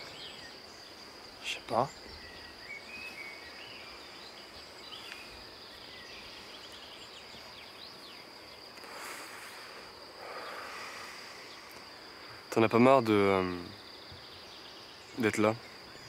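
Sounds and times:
high-pitched insect tone: 0.0s - 16.0s.

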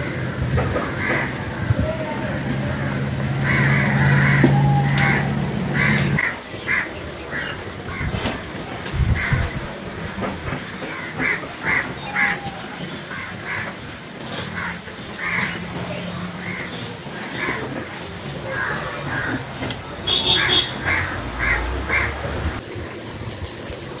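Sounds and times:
crows cawing: 0.8s - 1.7s, 2.6s - 8.1s, 10.8s - 15.6s, 16.4s - 22.4s.

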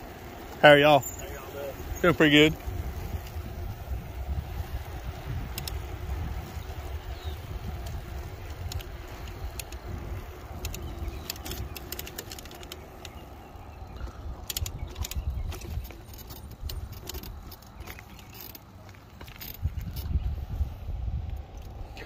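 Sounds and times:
wind rumbling on microphone: 0.0s - 22.0s
rattling clicks of frame: 5.3s - 6.6s, 7.7s - 13.4s, 14.0s - 20.2s.

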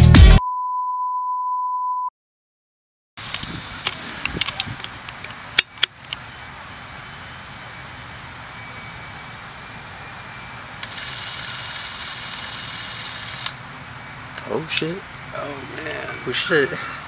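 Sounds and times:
clockwork camera motor whirring: 10.8s - 13.6s.

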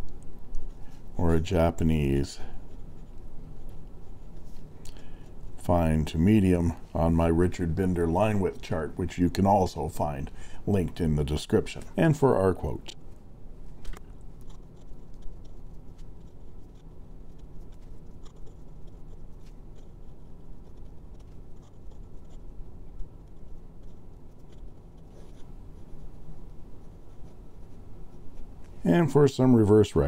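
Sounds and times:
small nib ticks: 0.0s - 0.9s, 13.8s - 26.3s
faint steady hum: 0.0s - 30.0s
pen nib scratching on paper: 0.1s - 5.5s, 13.8s - 28.5s.

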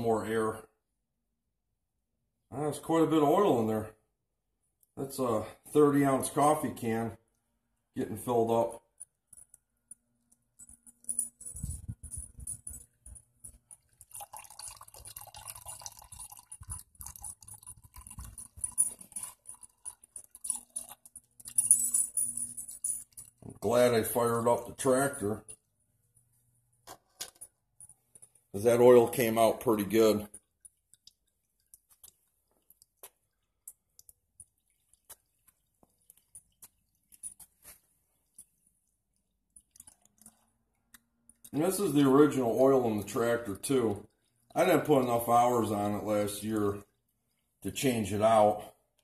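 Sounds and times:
oil dripping into a can: 12.3s - 21.6s, 27.6s - 49.0s.

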